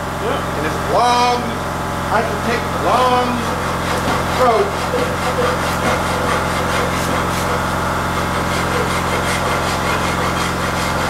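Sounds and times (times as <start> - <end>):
steady machine hum: 0.0 - 11.0
wood rasp scraping wood: 3.0 - 11.0.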